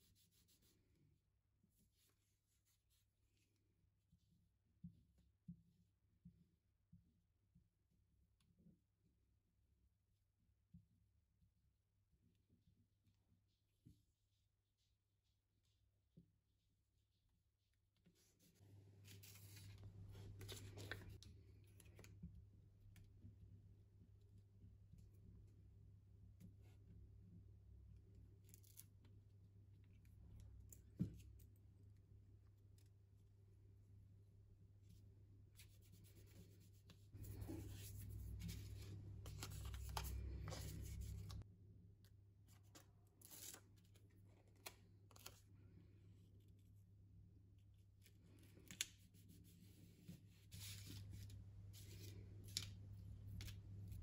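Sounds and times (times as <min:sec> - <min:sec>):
paper rustling and scratching: 0:18.2 - 0:22.1, 0:35.6 - 0:41.4, 0:42.5 - 0:45.4, 0:48.0 - 0:54.0.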